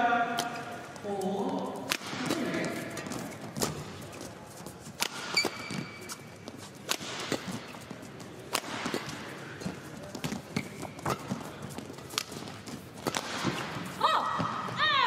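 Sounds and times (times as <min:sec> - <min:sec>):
rackets hitting shuttlecock: 0:01.8 - 0:04.0, 0:05.0 - 0:14.6
shoe squeak: 0:05.3 - 0:06.8, 0:10.5 - 0:11.7.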